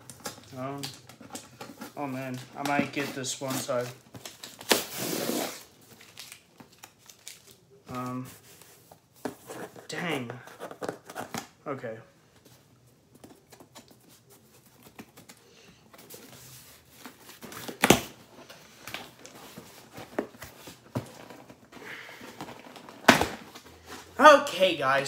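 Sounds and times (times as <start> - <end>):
cardboard scraping and rustling: 13.2 - 24.2.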